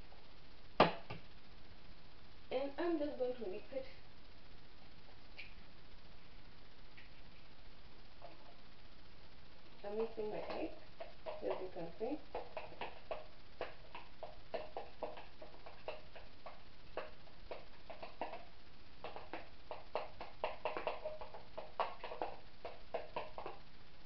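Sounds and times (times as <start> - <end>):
fork beating egg in plastic tub: 9.9 - 23.7.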